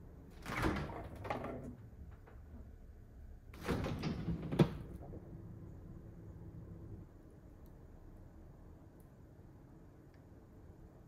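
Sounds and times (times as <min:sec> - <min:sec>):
refrigerator door opening: 0:03.6 - 0:05.2.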